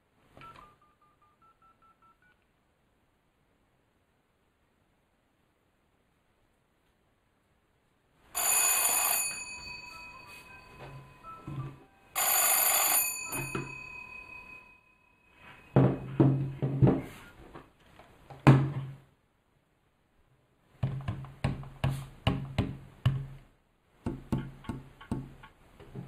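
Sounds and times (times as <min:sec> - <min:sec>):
electric telephone bell ringing: 0:08.4 - 0:15.8.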